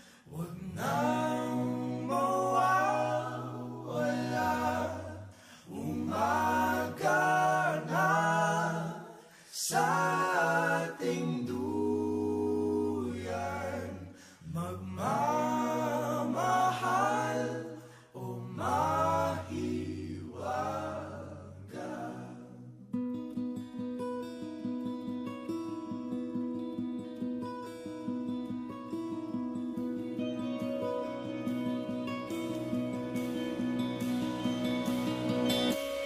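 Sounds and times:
a cappella harmony singing: 0:00.0 - 0:22.8.

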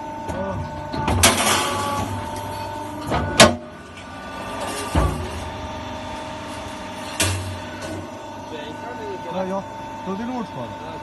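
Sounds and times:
machine motor humming: 0:00.0 - 0:11.0.

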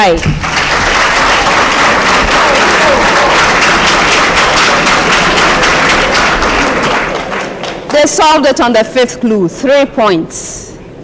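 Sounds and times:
audience applauding: 0:00.3 - 0:08.2.

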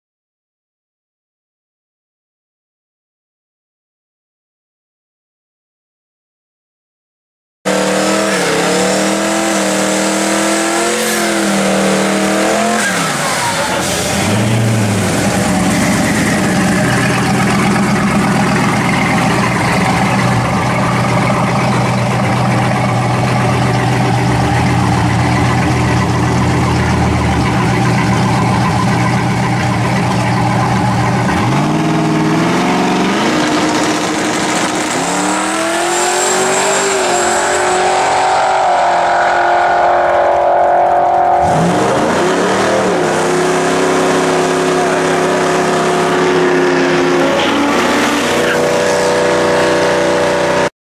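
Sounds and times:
car engine revving: 0:07.7 - 0:50.7.

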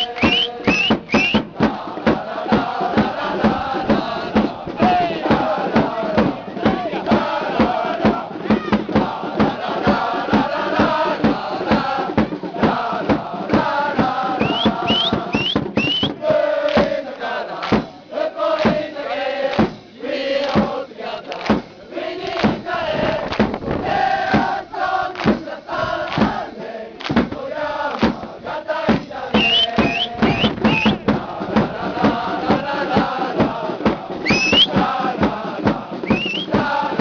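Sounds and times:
high rising whistles: 0:00.0 - 0:01.4, 0:14.4 - 0:16.2, 0:29.4 - 0:31.1, 0:34.2 - 0:34.8, 0:36.0 - 0:36.6
crowd singing a chant: 0:00.0 - 0:37.0
steady drum beat: 0:00.0 - 0:37.0.

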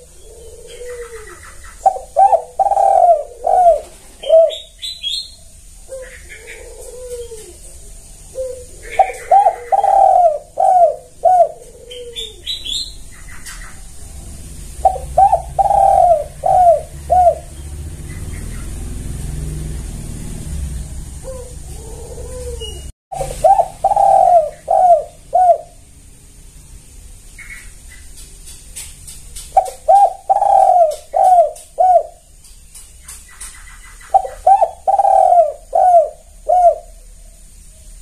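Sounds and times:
dove cooing: 0:00.0 - 0:05.2, 0:05.8 - 0:13.8, 0:14.8 - 0:17.7, 0:21.2 - 0:25.8, 0:29.5 - 0:32.2, 0:34.0 - 0:37.4
high bird chirps: 0:14.9 - 0:19.0.

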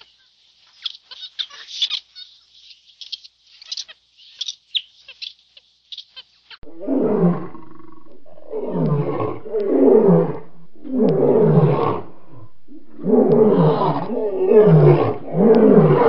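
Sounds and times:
lion roaring: 0:06.6 - 0:16.0.

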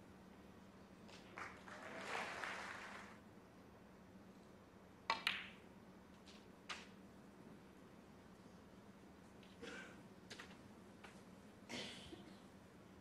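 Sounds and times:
soft background noise: 0:00.0 - 0:13.0
snooker balls clicking: 0:05.1 - 0:05.6.

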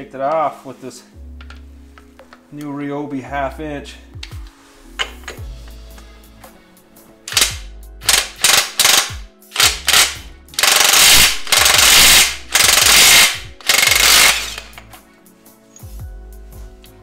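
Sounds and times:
impact wrench hammering: 0:07.3 - 0:14.9.

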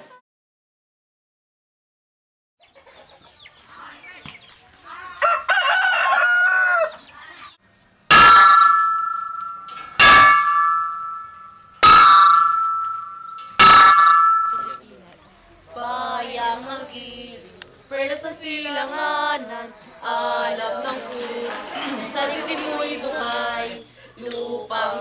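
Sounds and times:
rooster crowing: 0:05.1 - 0:07.1
stone striking metal gas cylinder: 0:08.1 - 0:14.8.

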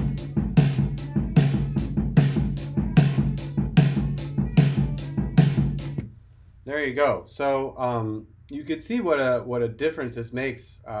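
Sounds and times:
compressed drum beat: 0:00.0 - 0:06.2.

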